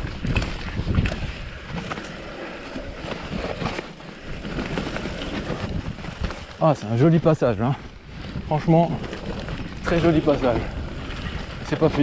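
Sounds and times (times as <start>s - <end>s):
wind on microphone: 0.0s - 2.0s
tyres rolling over leaves and dirt: 0.0s - 12.0s.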